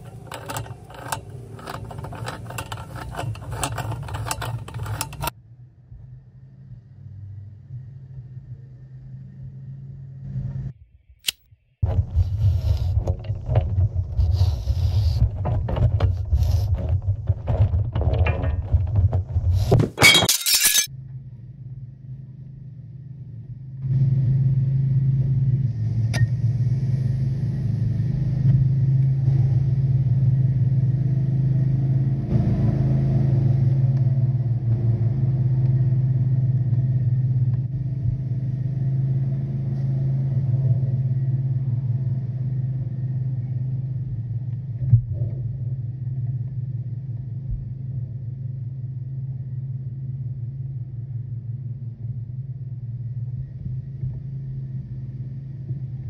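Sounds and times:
metal clattering and clinking: 0.0 - 5.3, 17.0 - 20.9
low engine-like hum: 0.0 - 17.3, 20.9 - 56.0.

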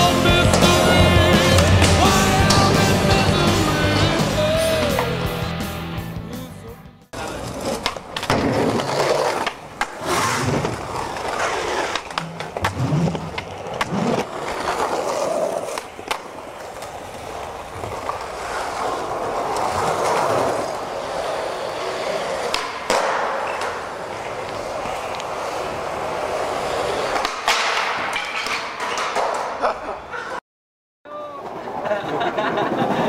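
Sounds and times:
skateboard wheels rolling on concrete: 0.0 - 6.5, 7.1 - 30.4, 31.1 - 33.0
skateboard popping and landing clacks: 7.3 - 20.8, 22.0 - 26.4, 27.0 - 29.7.

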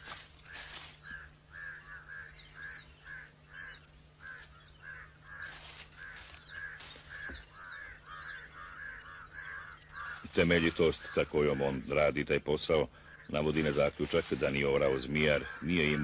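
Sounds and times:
thin bird chirps: 0.0 - 11.2
birds calling: 0.0 - 16.0
low steady hum: 0.0 - 16.0.

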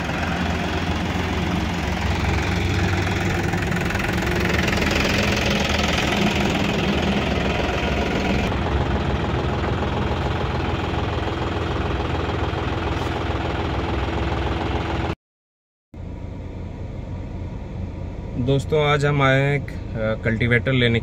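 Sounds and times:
tractor diesel engine idling: 0.0 - 15.2.

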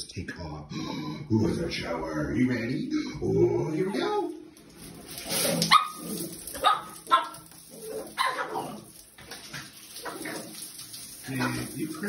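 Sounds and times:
puppy yipping barks: 5.7 - 6.0, 6.6 - 8.8.

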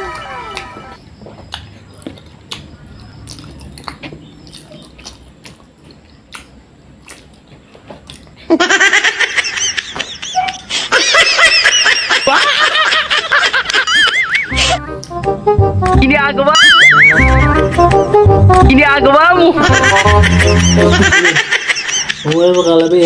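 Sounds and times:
wet chewing and mouth clicks: 0.5 - 8.5
high-pitched wobbling laughter effect: 13.8 - 15.0, 16.6 - 17.9, 19.6 - 22.7.

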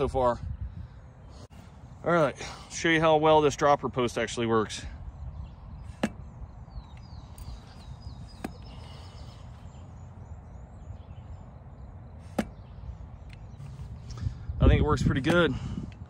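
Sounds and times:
low wind rumble: 0.0 - 16.0.

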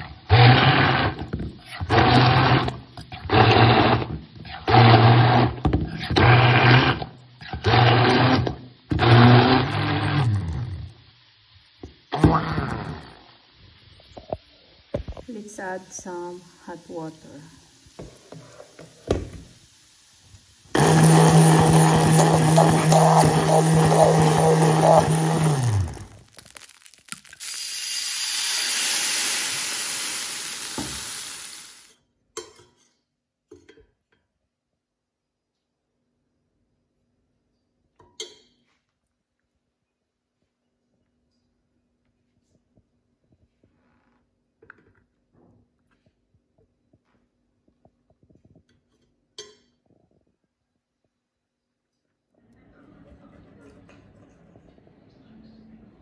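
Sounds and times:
stick blender motor running: 0.0 - 10.8, 20.7 - 31.9
wine sizzling in hot pan: 0.0 - 32.0.

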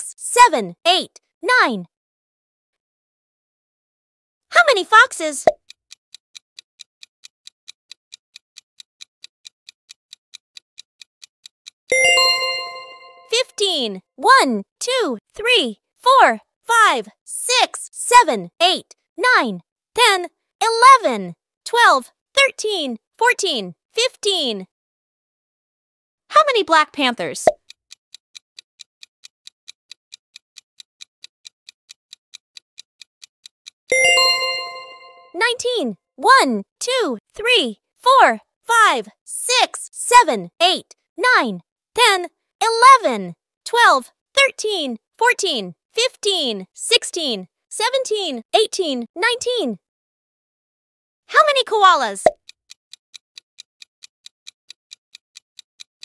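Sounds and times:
clock-like timer ticking: 5.4 - 24.6, 27.4 - 49.6, 51.5 - 56.0
bright bell-like chime: 11.9 - 13.3, 33.9 - 35.4.

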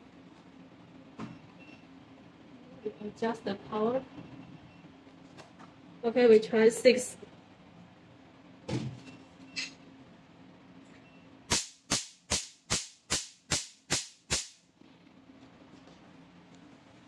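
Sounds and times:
laser pulse snapping: 11.5 - 14.6.

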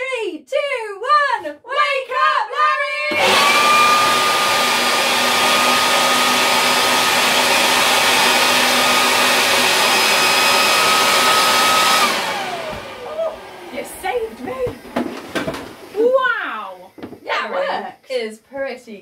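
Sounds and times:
leaf blower running: 3.1 - 17.6.

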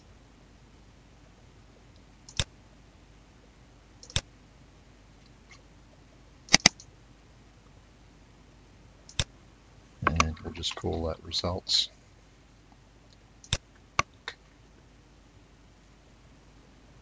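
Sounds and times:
computer mouse clicks: 2.3 - 2.5, 4.0 - 4.3, 6.5 - 6.9, 9.1 - 9.3, 13.4 - 14.4.

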